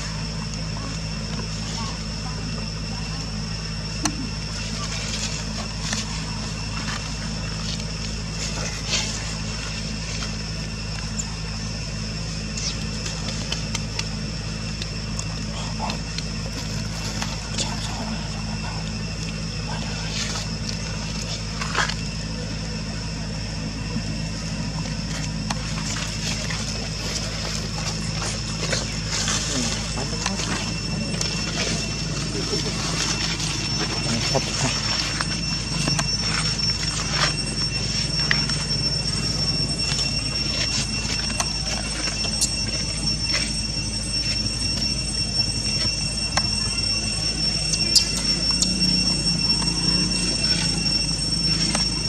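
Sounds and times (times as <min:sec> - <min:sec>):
high steady whine: 0:00.0 - 0:52.0
insects droning: 0:00.0 - 0:52.0
low hum: 0:00.0 - 0:52.0
dry leaves crackling and rustling: 0:25.0 - 0:44.9.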